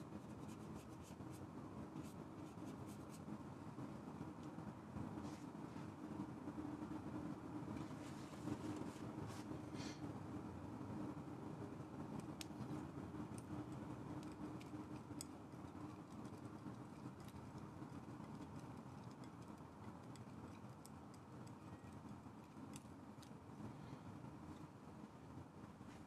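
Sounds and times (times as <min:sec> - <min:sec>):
low room hum: 0:00.0 - 0:26.0
palette knife clicking and tapping: 0:13.3 - 0:23.4.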